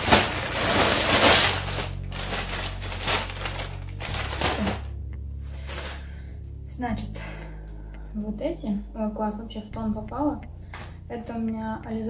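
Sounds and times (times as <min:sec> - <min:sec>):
plastic bag rustling and crinkling: 0:00.0 - 0:04.9, 0:05.5 - 0:06.1.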